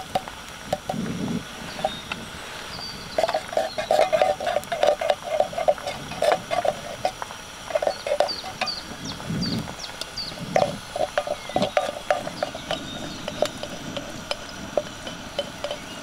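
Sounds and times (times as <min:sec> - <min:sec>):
wooden spoon tapping in tin can: 0:00.0 - 0:01.1, 0:03.1 - 0:09.2, 0:10.4 - 0:16.0.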